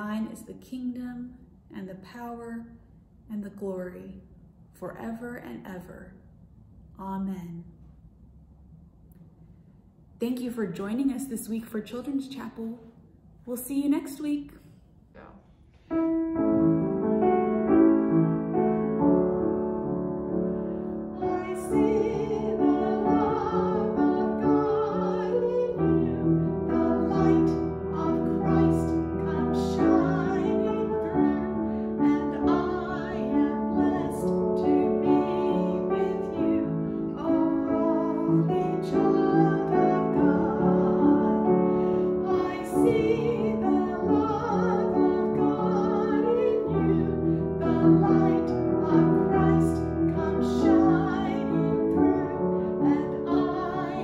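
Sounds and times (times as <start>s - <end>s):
upright piano accompaniment: 15.8s - 54.0s
woman singing: 21.2s - 54.0s.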